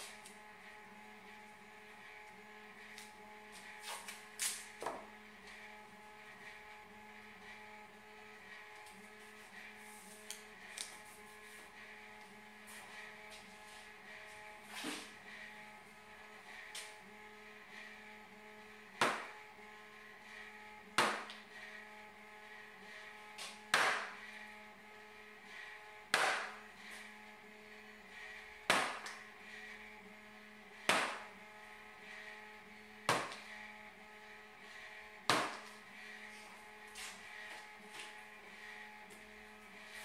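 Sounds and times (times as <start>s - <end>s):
hammer tapping a punch: 19.0s - 19.3s, 21.0s - 21.4s, 23.7s - 24.1s, 26.1s - 26.6s, 30.9s - 31.2s.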